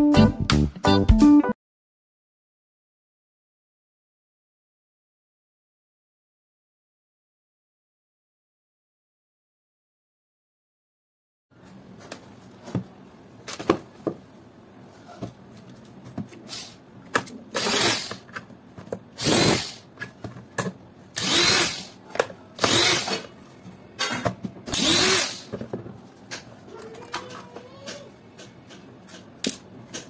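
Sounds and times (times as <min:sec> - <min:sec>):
electric screwdriver whining: 0:17.6 - 0:18.2, 0:19.2 - 0:19.8, 0:21.2 - 0:21.9, 0:22.6 - 0:23.2, 0:24.7 - 0:25.5.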